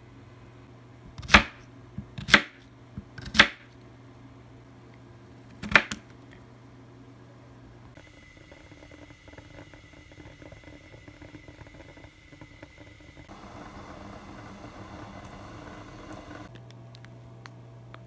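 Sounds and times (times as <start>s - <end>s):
liquid poured into pot hissing: 8.0s - 16.5s
water crackling in a pan: 8.0s - 16.5s.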